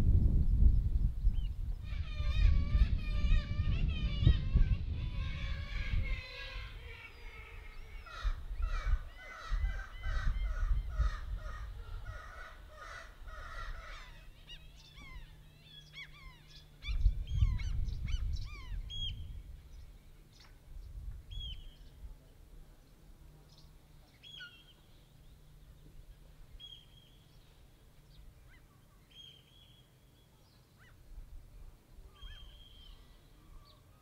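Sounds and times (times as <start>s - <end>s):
low rumbling wind gusts: 0.0s - 14.3s, 16.2s - 23.2s
high falling bird calls: 0.5s - 22.0s, 32.0s - 34.0s
harsh bird calls: 1.4s - 19.3s.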